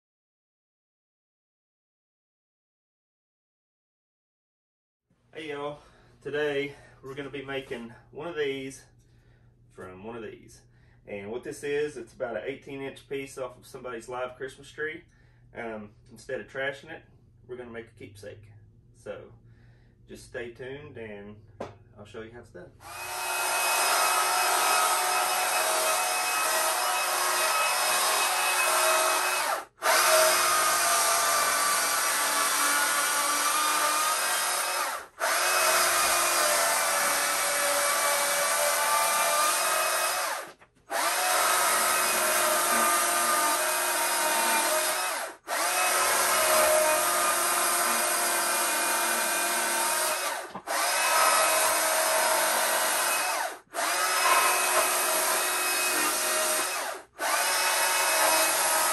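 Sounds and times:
chainsaw cutting wood: 22.8s - 58.9s.

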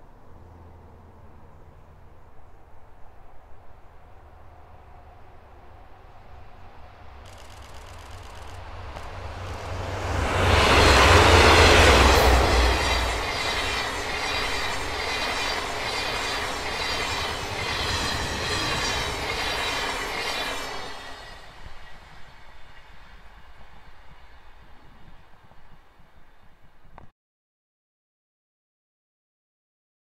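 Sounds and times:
locomotive engines rumbling: 4.0s - 25.9s
wheels clattering on rails: 7.3s - 22.0s.

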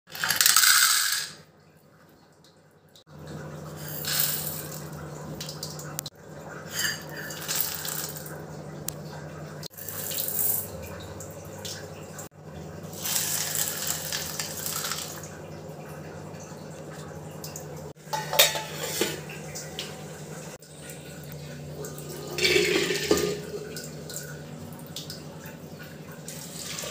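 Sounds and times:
water poured over dried pulses: 7.3s - 8.3s, 13.0s - 15.2s
steel plate clattering on bowl: 18.1s - 19.2s, 22.4s - 23.5s.

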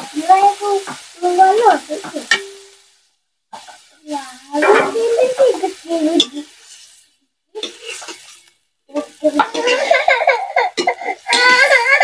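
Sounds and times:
oil sizzling: 0.0s - 12.0s
steel plate clinking on pan: 2.3s - 2.7s
spatula scraping and stirring: 4.6s - 10.0s.

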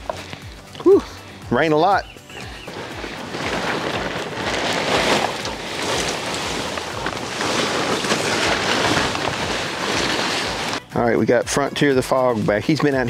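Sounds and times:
plastic tarp rustling: 1.8s - 11.0s.

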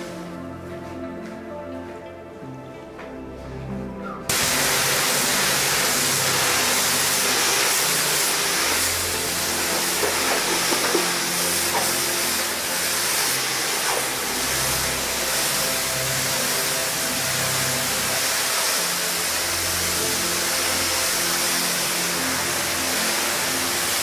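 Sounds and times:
water spray hitting tiled floor: 4.3s - 24.0s.

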